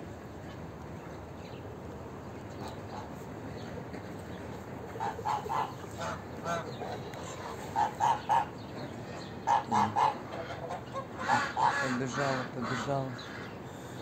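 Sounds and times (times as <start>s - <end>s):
guineafowl calling: 4.8s - 14.0s.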